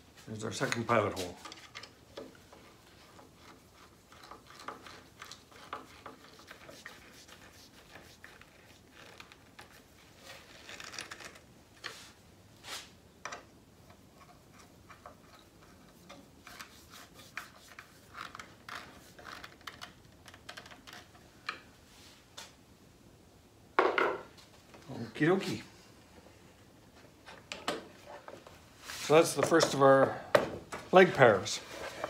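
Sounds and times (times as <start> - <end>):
screw scraping twists: 0.6 - 12.0, 13.3 - 21.6.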